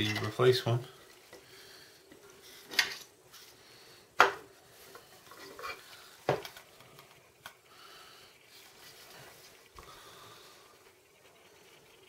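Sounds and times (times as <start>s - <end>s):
faint rubbing: 7.1s - 12.0s.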